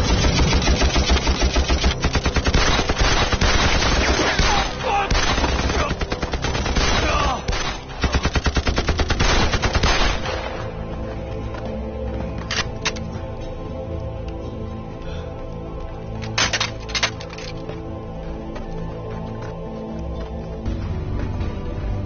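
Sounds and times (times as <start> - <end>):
machine-gun fire: 0.0 - 10.6
gunshots: 0.0 - 10.8.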